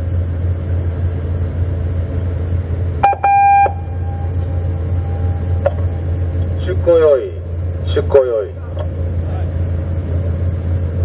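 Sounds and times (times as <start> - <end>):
low hum of vessel machinery: 0.0 - 11.0
short electronic beep: 3.0 - 4.4
faint steady tone: 3.0 - 6.0.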